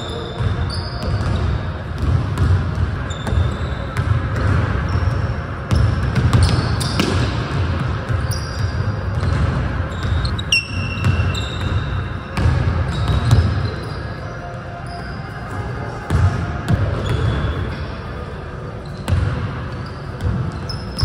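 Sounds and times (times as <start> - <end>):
sneakers squeaking: 0.0 - 21.0
basketball bouncing on wood floor: 1.0 - 5.0, 5.7 - 13.6.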